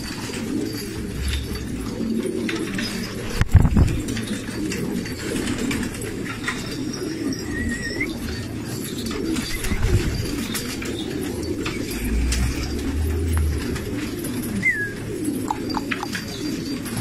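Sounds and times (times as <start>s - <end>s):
pigeons cooing: 0.0s - 17.0s
high warbling note: 1.0s - 2.2s.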